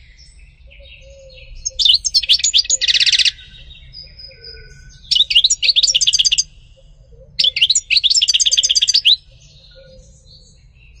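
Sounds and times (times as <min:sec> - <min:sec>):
goldfinch twittering: 0:01.6 - 0:03.5, 0:05.1 - 0:06.5, 0:07.4 - 0:09.2.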